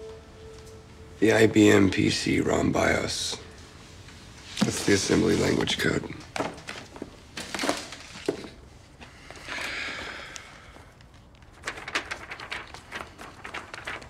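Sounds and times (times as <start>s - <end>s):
printout paper rustling: 4.5s - 8.6s, 11.1s - 14.0s.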